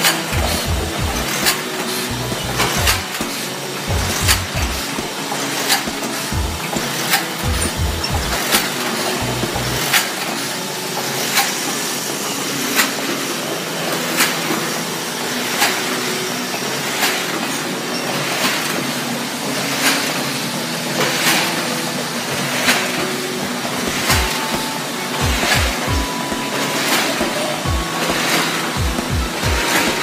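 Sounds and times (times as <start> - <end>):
die-cutting machine clattering: 0.0 - 30.0.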